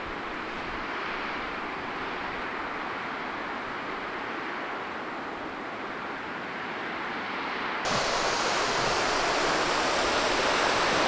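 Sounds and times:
waterfall rushing: 7.9 - 11.0.

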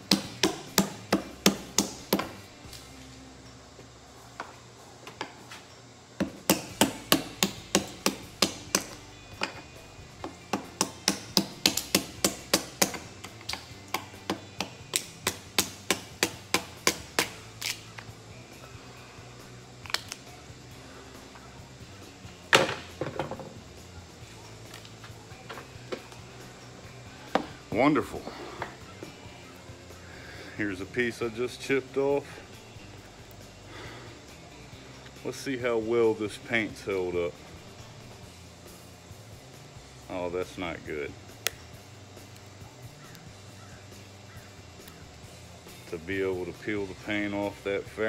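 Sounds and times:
mallet striking chisel: 0.1 - 2.3, 6.2 - 9.0, 10.5 - 13.0.

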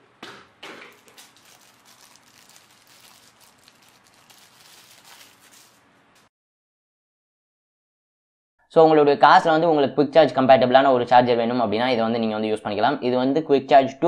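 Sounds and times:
plastic bag crinkling: 0.8 - 6.3.

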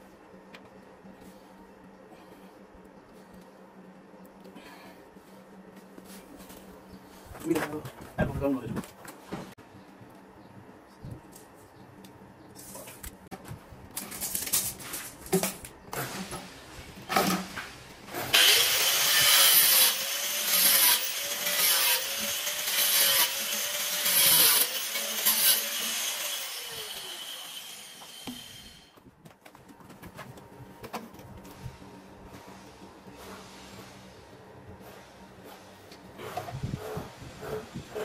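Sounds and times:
angle grinder cutting pipe: 18.3 - 28.9.

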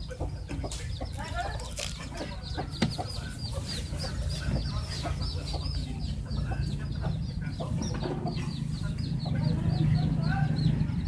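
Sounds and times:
chickens peeping and clucking: 0.0 - 11.0.

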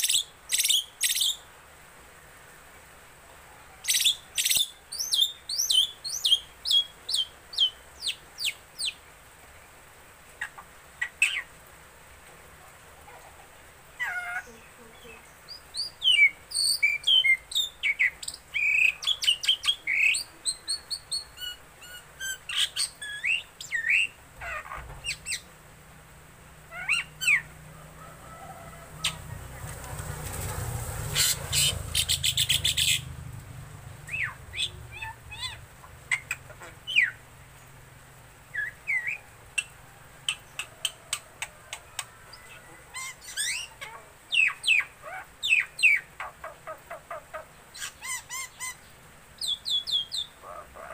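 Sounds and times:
motorcycle passing: 24.7 - 39.5.

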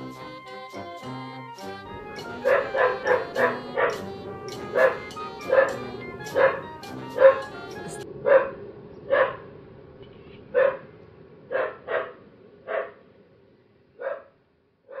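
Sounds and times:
dog barking: 2.4 - 4.1, 4.7 - 7.5, 8.2 - 9.4, 10.5 - 10.9, 11.5 - 13.0, 14.0 - 14.3.

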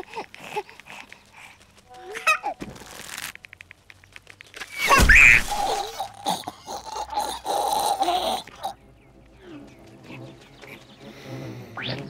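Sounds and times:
bow creaking ticks: 0.0 - 6.6.

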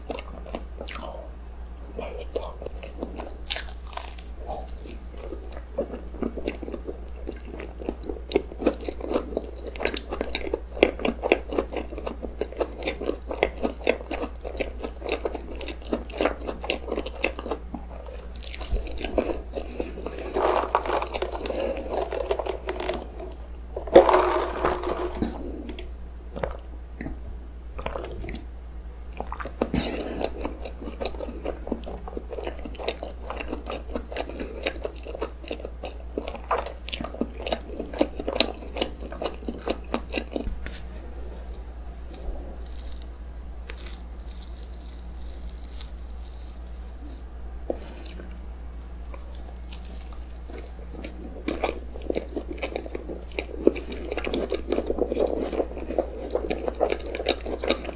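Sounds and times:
chewing with mouth clicks: 0.1 - 23.4, 29.1 - 40.5, 47.0 - 57.9.

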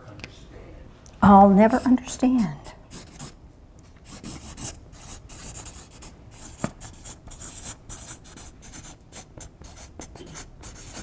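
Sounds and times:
marker pen scratching on paper: 1.8 - 3.4, 4.0 - 11.0.

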